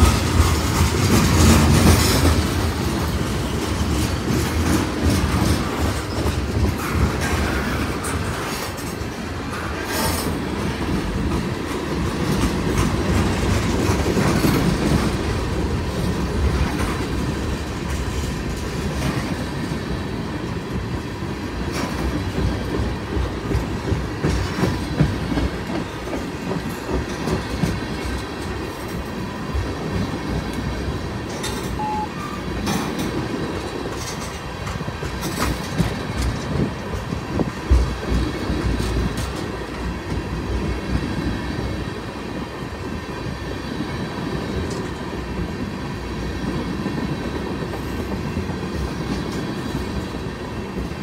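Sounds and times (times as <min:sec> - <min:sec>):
train wheels rumbling on rails: 0:00.0 - 0:51.0
wheels clicking over track: 0:21.6 - 0:41.0.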